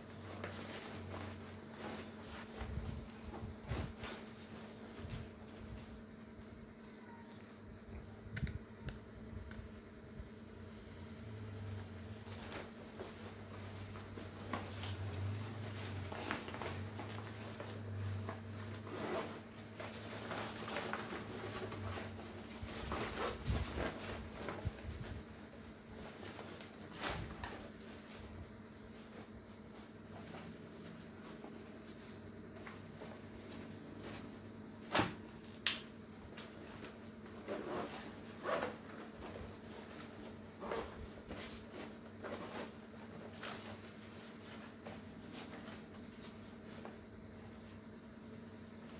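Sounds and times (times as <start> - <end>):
faint steady hum: 0.0 - 48.9
nylon bag and plastic rustling: 12.2 - 35.6.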